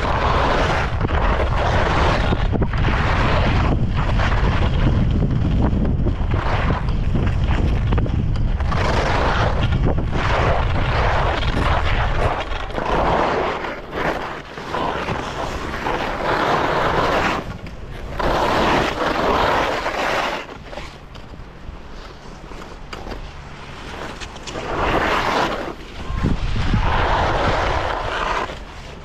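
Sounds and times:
wind buffeting microphone: 0.0s - 13.3s, 25.8s - 28.4s
skis scraping icy snow: 0.0s - 21.1s, 21.7s - 29.0s.

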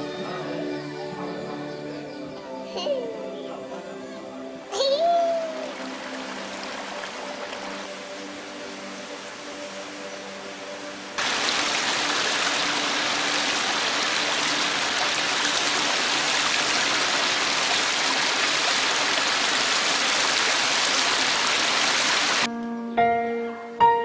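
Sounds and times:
stream splashing over rocks: 5.6s - 9.5s, 11.2s - 22.5s.

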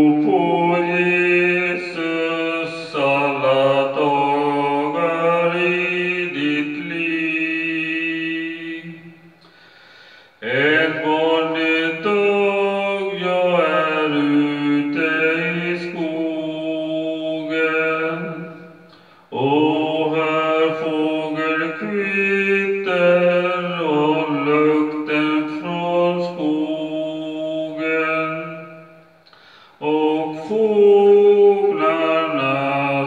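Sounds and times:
man singing long notes: 0.0s - 9.6s, 10.4s - 33.0s.

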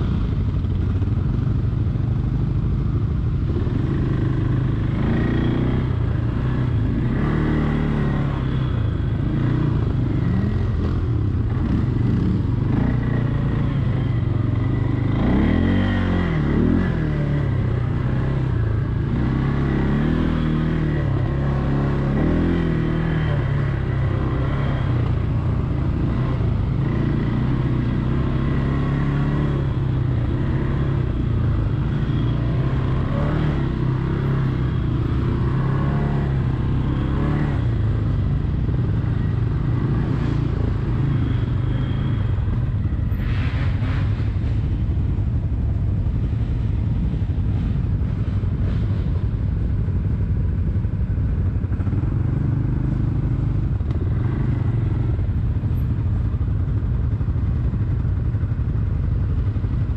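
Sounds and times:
quad bike engine revving: 3.6s - 8.6s, 9.3s - 31.7s, 32.3s - 34.6s.

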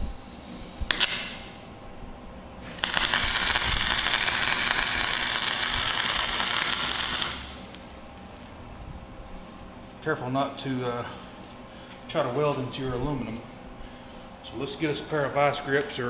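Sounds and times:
welder arc crackling: 0.9s - 1.6s, 2.6s - 8.6s.

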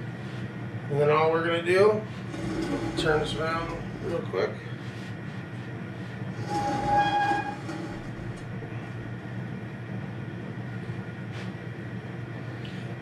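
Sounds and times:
camp burner running: 1.8s - 12.4s
high squeal: 6.4s - 8.4s.

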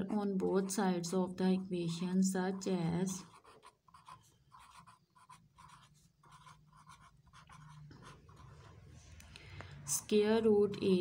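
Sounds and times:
marker pen scratching on paper: 0.0s - 1.1s, 2.0s - 9.2s.

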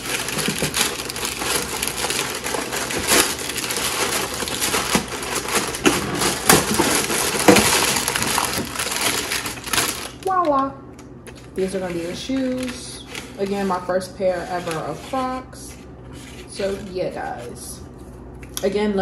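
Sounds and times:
packaging crinkling and rustling: 0.0s - 13.8s.

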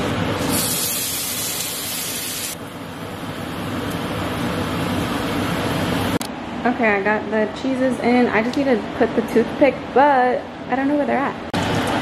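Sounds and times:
sauce sizzling in hot oil: 0.4s - 2.6s.

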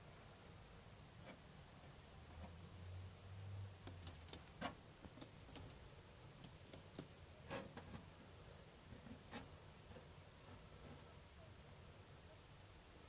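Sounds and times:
faint short clicks and ticks: 3.8s - 5.8s, 6.4s - 7.1s.

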